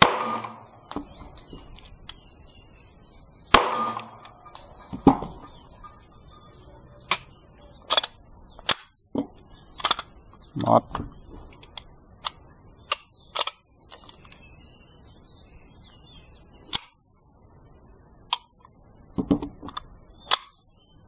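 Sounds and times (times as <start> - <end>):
metallic clacks of pistols: 7.1 - 7.3, 7.9 - 8.9, 9.8 - 10.1, 11.6 - 14.2, 19.2 - 20.6.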